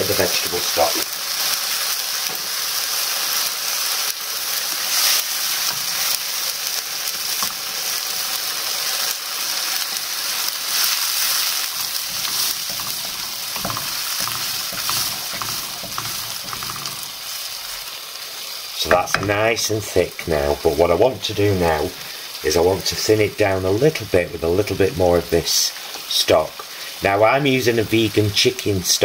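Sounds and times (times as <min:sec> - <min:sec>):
soup sizzling in a wok: 0:00.0 - 0:29.0
wooden spoon scraping: 0:10.7 - 0:18.0.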